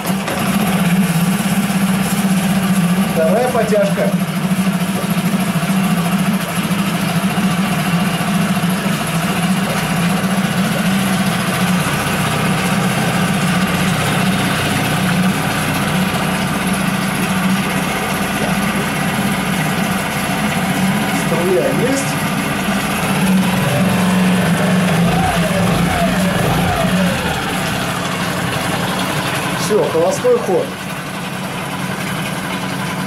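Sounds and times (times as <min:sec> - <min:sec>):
outboard motor idling: 0:00.0 - 0:33.0.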